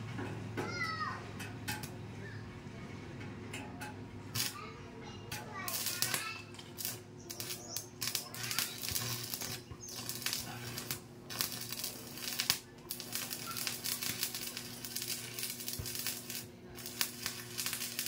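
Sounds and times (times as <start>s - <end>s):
arc welding crackling: 3.8s - 4.7s, 5.3s - 18.0s.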